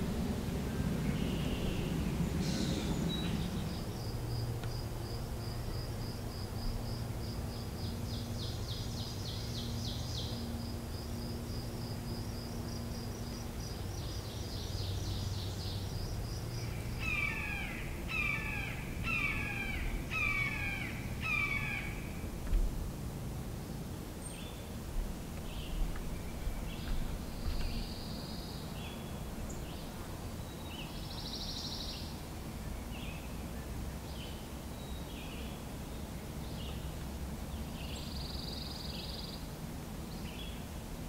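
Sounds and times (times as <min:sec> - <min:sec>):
hawk harsh falling calls: 0:17.0 - 0:22.1.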